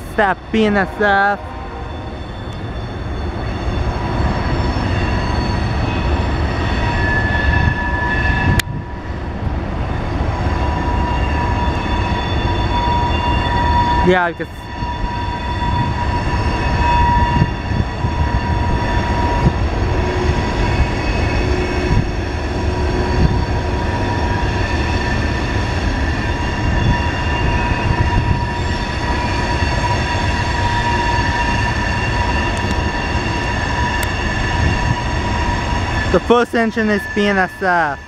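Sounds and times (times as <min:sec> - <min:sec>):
train wheels rumbling on rails: 0:00.0 - 0:38.0
high-pitched wheel flange squeal: 0:00.8 - 0:08.6, 0:10.0 - 0:38.0.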